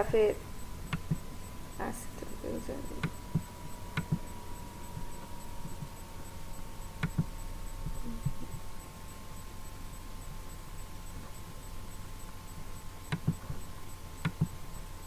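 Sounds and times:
low electrical hum: 0:00.0 - 0:15.0
thin steady tone: 0:00.0 - 0:15.0
computer mouse and keyboard clicks: 0:07.0 - 0:07.3, 0:13.1 - 0:13.6, 0:14.2 - 0:14.6.

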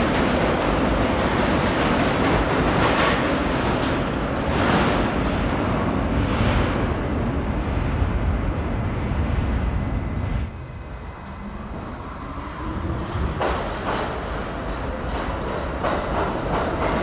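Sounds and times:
subway train rumble: 0:00.0 - 0:17.0
train approaching with rising whine: 0:06.0 - 0:17.0.

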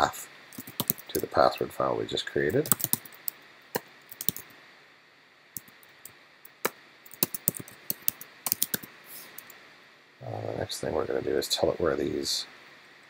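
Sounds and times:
computer keyboard typing: 0:00.5 - 0:01.3, 0:02.5 - 0:03.4, 0:04.1 - 0:04.5, 0:05.6 - 0:05.8, 0:06.4 - 0:09.5.

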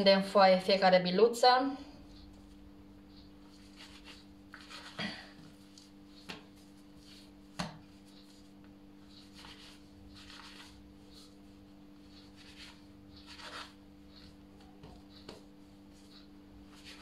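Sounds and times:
faint steady hum: 0:00.0 - 0:17.0
hands rolling dough: 0:02.1 - 0:17.0
scraper scraping dough on countertop: 0:03.4 - 0:14.4, 0:15.0 - 0:17.0.

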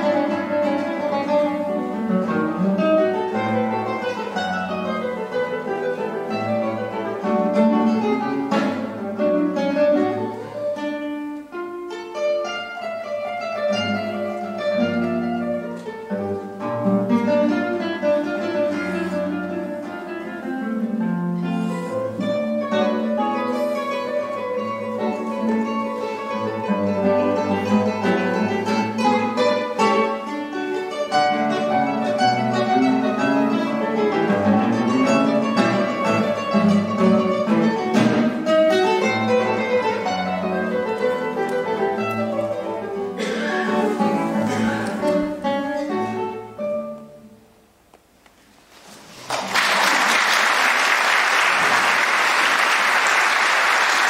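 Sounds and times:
classical guitar duo playing: 0:00.0 - 0:50.0
audience applause: 0:49.1 - 0:54.0.

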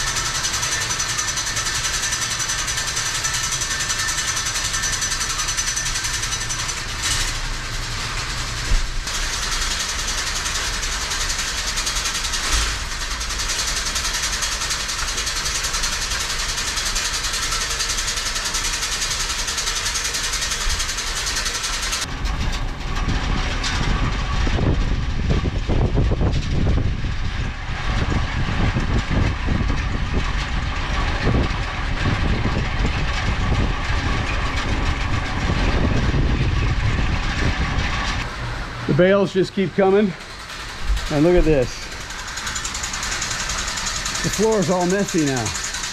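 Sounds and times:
bale elevator chain clatter: 0:00.0 - 0:24.8, 0:38.9 - 0:45.9
low machine rumble: 0:00.0 - 0:45.9.

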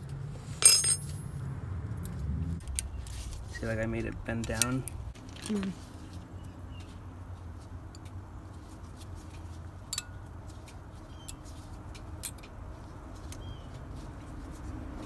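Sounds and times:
metallic clicks of brake pads: 0:04.4 - 0:05.0, 0:07.9 - 0:08.2, 0:09.2 - 0:12.6.

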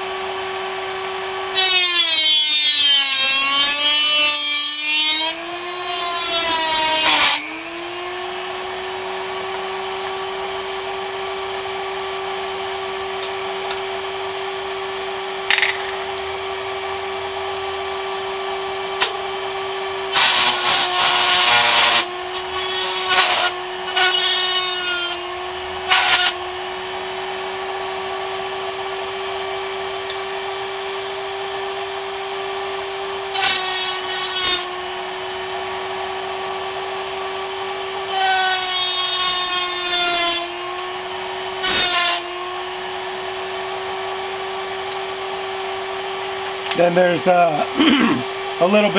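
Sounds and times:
rotary tool high whine: 0:00.0 - 0:48.9
cutoff wheel grinding metal can: 0:20.1 - 0:26.4.

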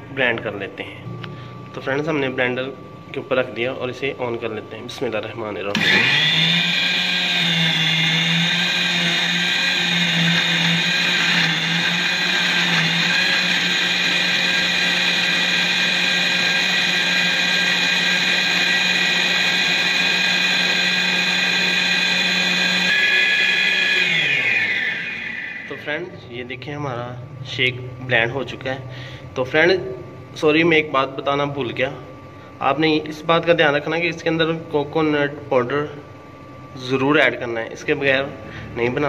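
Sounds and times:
blender running: 0:05.7 - 0:25.9.

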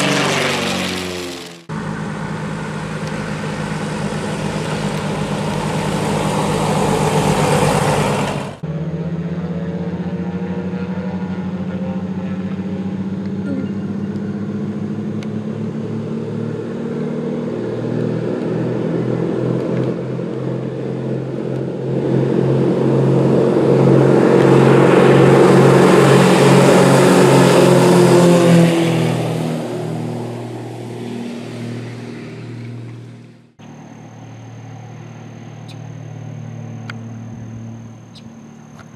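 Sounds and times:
propeller airplane engine drone: 0:00.0 - 0:38.9.

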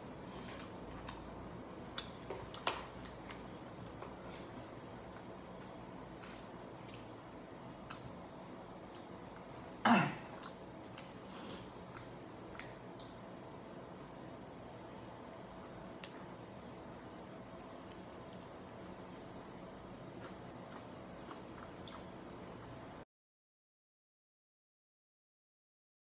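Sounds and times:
throat-clearing cough: 0:09.8 - 0:10.3.

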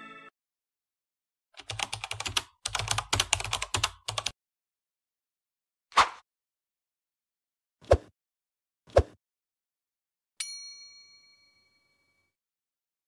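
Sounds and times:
bright bell ding: 0:10.4 - 0:12.3.

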